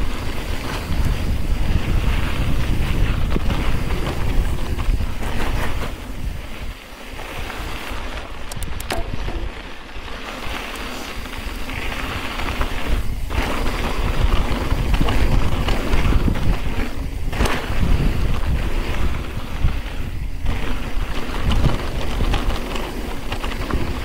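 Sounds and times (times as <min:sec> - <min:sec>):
bike tyres rolling on gravel: 0:00.0 - 0:24.0
wind buffeting microphone: 0:00.0 - 0:24.0
sharp clicks: 0:08.4 - 0:09.2.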